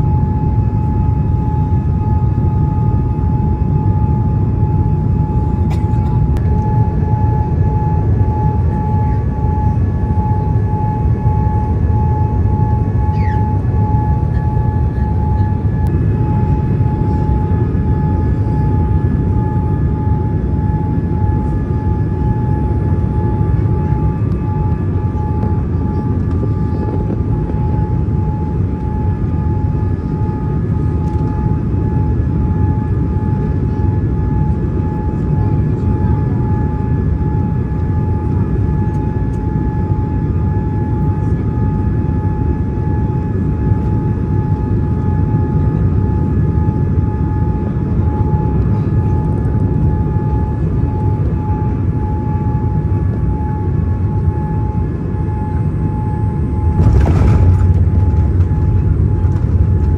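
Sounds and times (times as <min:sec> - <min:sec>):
high whine: 0:00.0 - 0:30.0, 0:49.2 - 0:59.9
aircraft engines and airflow rushing: 0:00.0 - 0:59.9.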